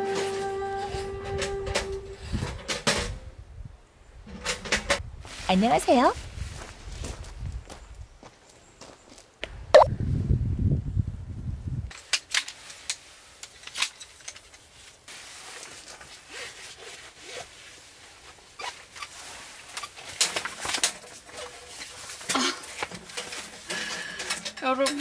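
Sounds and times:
clicks and knocks of chair poles: 0:04.3 - 0:05.0
nylon seat rustling: 0:12.5 - 0:24.1.

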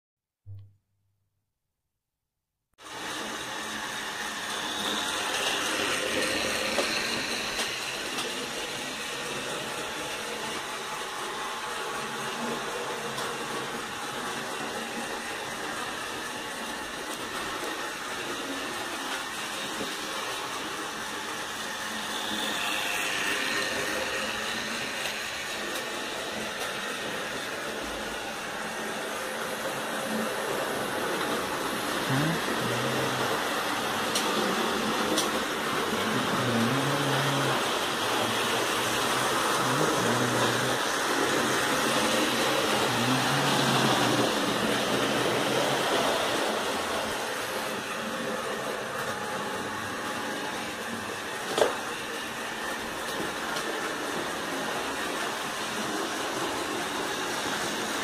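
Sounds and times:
model train whirring on rails: 0:02.8 - 0:58.0.

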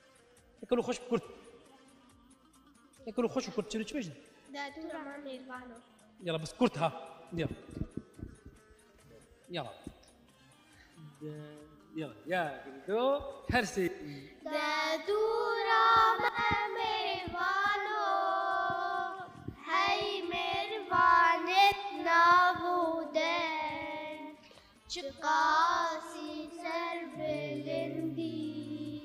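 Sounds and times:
young girls singing: 0:14.4 - 0:29.0.

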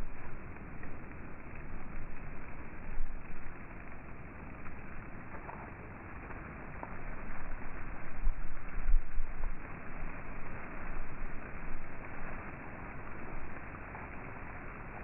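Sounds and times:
wind buffeting microphone: 0:07.2 - 0:12.2.

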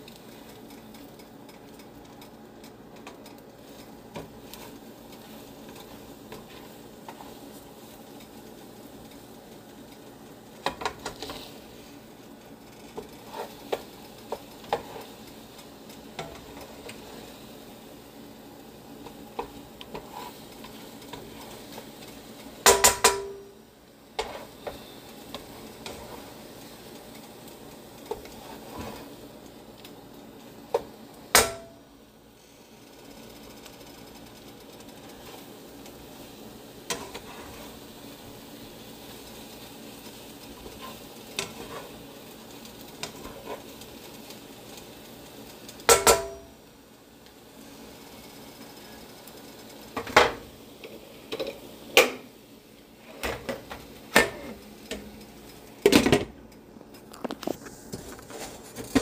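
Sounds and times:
eggs sizzling: 0:00.0 - 0:59.0
spatula scraping frying pan: 0:03.1 - 0:09.2, 0:10.6 - 0:12.0, 0:12.6 - 0:17.4, 0:19.0 - 0:22.2, 0:24.2 - 0:27.3, 0:28.0 - 0:29.2, 0:36.8 - 0:38.4, 0:39.0 - 0:42.2, 0:42.8 - 0:43.9, 0:57.6 - 0:59.0.

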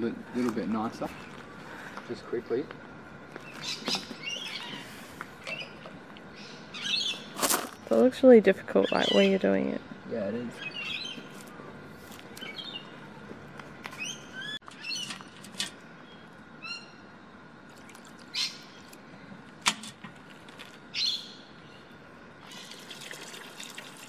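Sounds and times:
birds chirping: 0:00.0 - 0:17.4, 0:18.3 - 0:19.4, 0:20.8 - 0:23.0
liquid splashing into bucket: 0:22.5 - 0:24.0.

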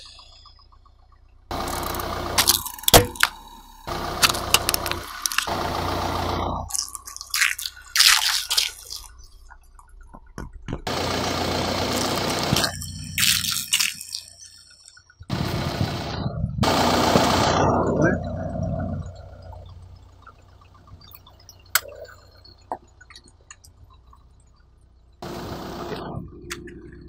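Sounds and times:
liquid balloons being crushed: 0:04.2 - 0:05.6, 0:06.7 - 0:09.2, 0:12.0 - 0:14.3
plastic toy car cracking: 0:04.2 - 0:05.6.

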